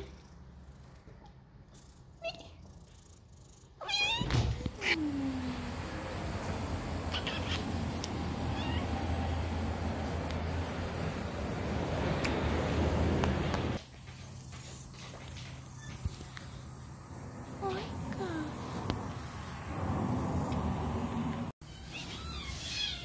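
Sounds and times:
kittens meowing: 7.0s - 9.1s, 21.7s - 23.0s.

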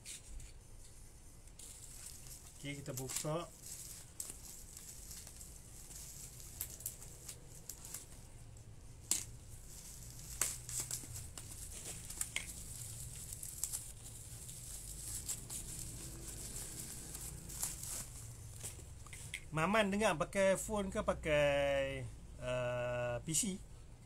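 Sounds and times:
plastic packaging crinkling: 1.4s - 19.5s
plastic tearing: 1.5s - 19.4s.

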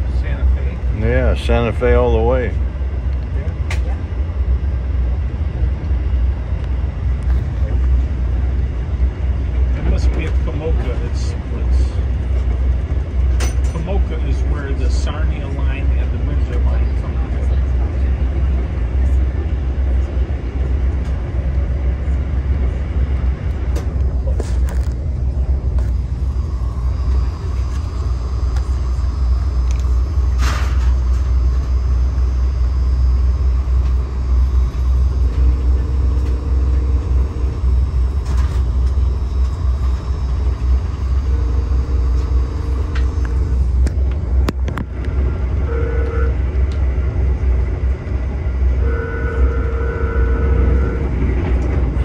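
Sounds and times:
train cabin rumble: 0.0s - 52.0s
locomotive horn blasts: 45.6s - 46.6s, 48.6s - 51.2s.

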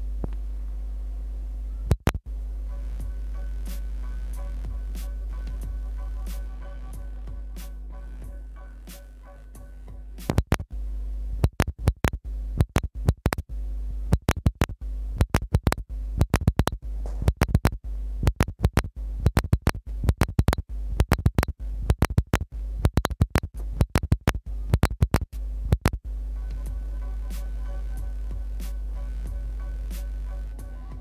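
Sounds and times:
steady low hum: 0.0s - 31.0s
sharp clicks and crackles: 1.9s - 2.2s, 10.3s - 10.7s, 11.4s - 13.4s, 14.1s - 26.0s.

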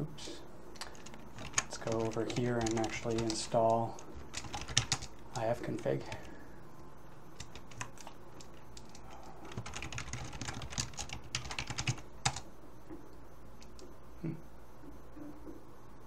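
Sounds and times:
keyboard keystrokes: 0.8s - 5.2s, 7.4s - 12.4s.

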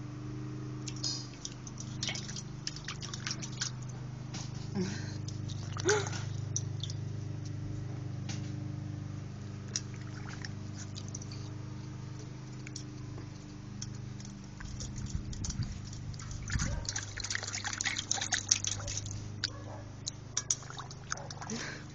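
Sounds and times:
dog splashing water in bowl: 0.9s - 4.0s, 5.2s - 7.0s, 9.7s - 11.4s, 14.6s - 21.8s.

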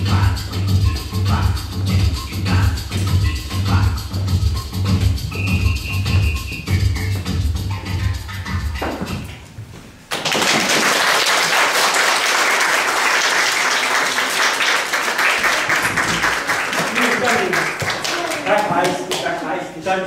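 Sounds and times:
dance music: 0.0s - 9.6s
audience applauding: 10.1s - 19.5s.

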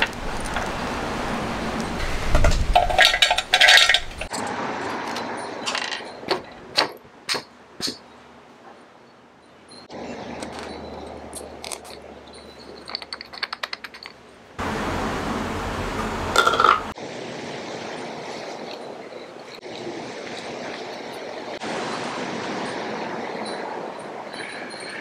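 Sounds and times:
light clicks and clinks: 9.7s - 14.4s.

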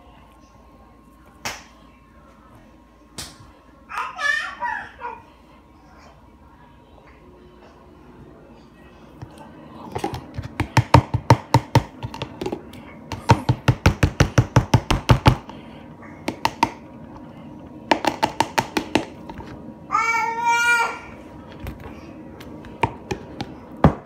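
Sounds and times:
plastic cup knocking: 9.9s - 15.5s, 16.2s - 16.8s, 17.9s - 19.1s.

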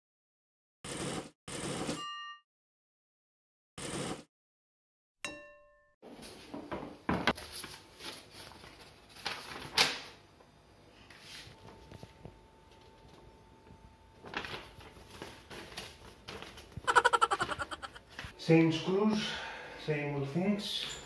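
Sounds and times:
paper booklet rustling: 7.3s - 10.1s, 14.2s - 16.9s.

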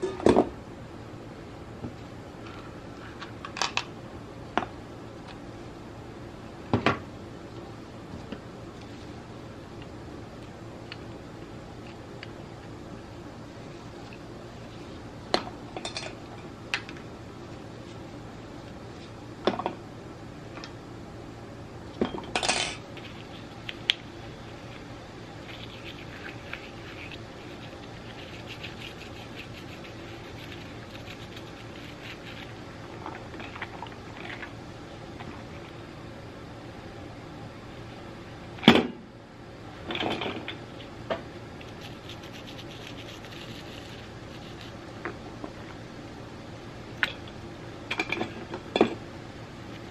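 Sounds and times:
low background hum: 0.0s - 49.9s
toothbrush scrubbing: 23.0s - 23.6s, 24.4s - 32.6s, 41.6s - 44.8s.

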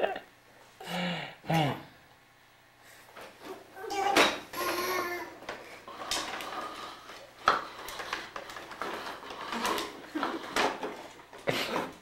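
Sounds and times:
toy walker wheels rattling on wood: 4.0s - 12.0s.

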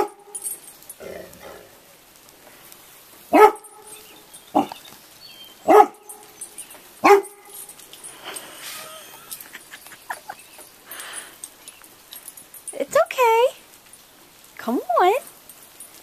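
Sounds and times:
dog barking: 3.3s - 4.8s, 5.6s - 6.3s, 7.0s - 7.6s.

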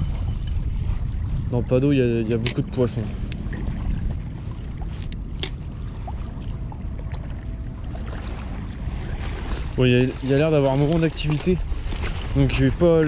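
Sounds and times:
faint steady whine: 0.0s - 10.1s
wind rumbling on microphone: 0.0s - 13.0s.

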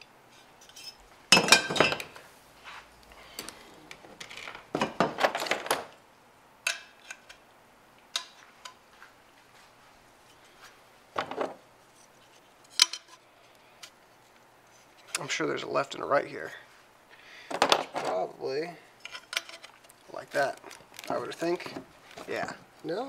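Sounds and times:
plastic packaging rustling: 19.4s - 22.6s.

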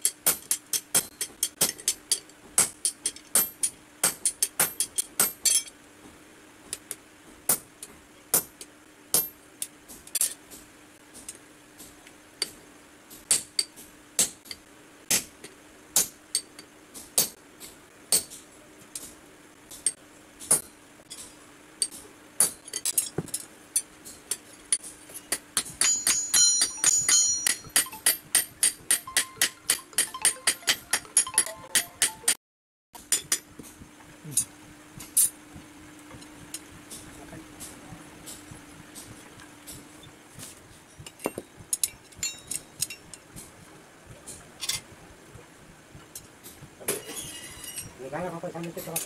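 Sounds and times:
hammer striking metal on anvil: 24.8s - 32.4s, 41.0s - 43.2s.

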